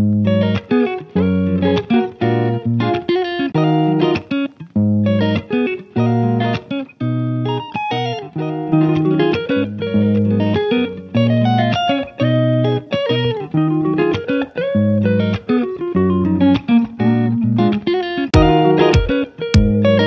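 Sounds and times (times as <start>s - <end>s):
plucked string melody: 0.0s - 20.0s
bass line: 18.4s - 20.0s.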